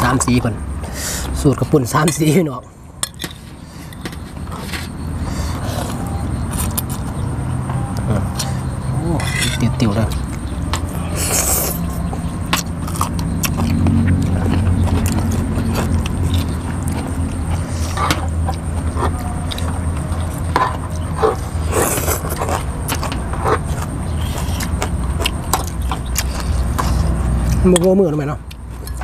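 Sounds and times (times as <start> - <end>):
chewing: 3.1 - 7.2, 7.9 - 29.0
utensils clinking against glass bowls: 8.4 - 10.8.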